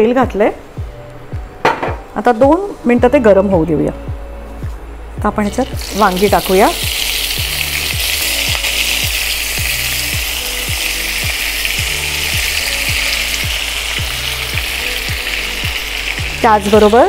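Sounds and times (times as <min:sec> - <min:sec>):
low regular thud: 0:01.4 - 0:02.1
vegetables sizzling in hot oil: 0:05.5 - 0:17.0.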